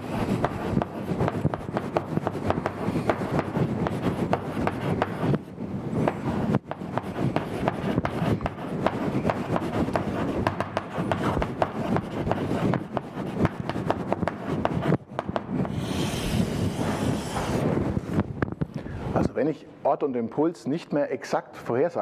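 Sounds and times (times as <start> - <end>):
chalk writing on a blackboard: 0.0 - 5.5, 6.4 - 17.7.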